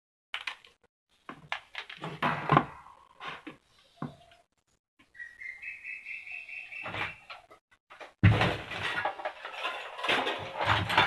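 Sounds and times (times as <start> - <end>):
fan parts clicking and knocking: 7.3 - 11.0.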